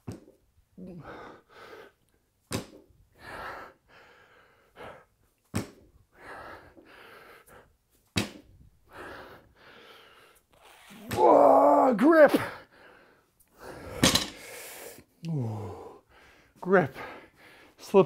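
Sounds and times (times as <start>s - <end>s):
heavy breathing: 0.8s - 2.1s, 3.1s - 5.2s, 6.1s - 7.8s, 8.8s - 10.8s, 12.4s - 17.8s.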